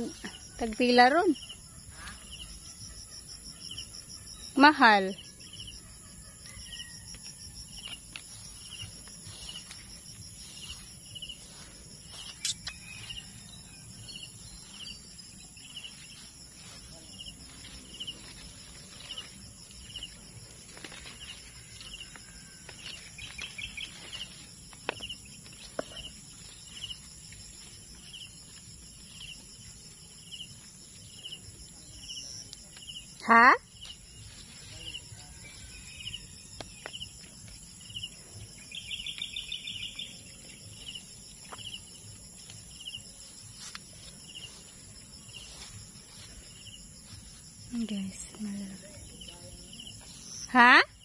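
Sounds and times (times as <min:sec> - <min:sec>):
insects droning: 0:00.0 - 0:51.0
plants rustling and clicking: 0:15.6 - 0:29.2, 0:41.4 - 0:50.1.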